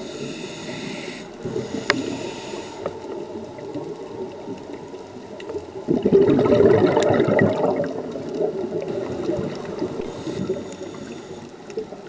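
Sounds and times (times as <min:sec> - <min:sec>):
underwater water rush: 0:00.0 - 0:12.0
diver's breath bubbling underwater: 0:05.9 - 0:10.9.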